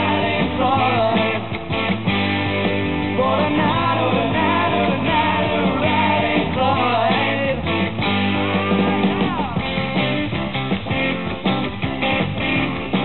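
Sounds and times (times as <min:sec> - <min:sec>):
rock band playing live: 0:00.0 - 0:13.0.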